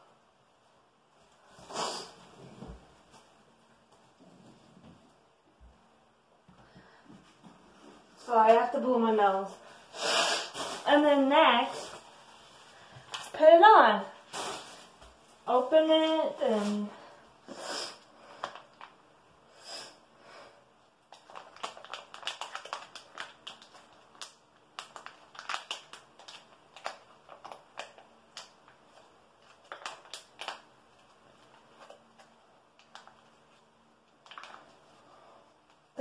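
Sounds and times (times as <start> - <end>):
plastic sachet crinkling: 18.3 - 19.0, 21.1 - 34.9.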